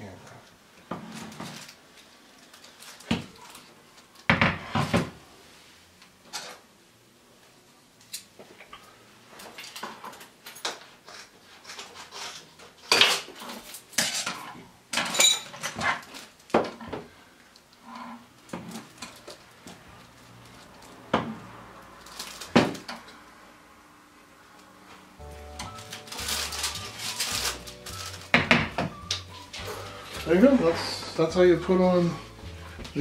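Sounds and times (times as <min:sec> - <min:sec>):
tools clattering on a counter: 0:06.3 - 0:06.6, 0:09.4 - 0:16.0.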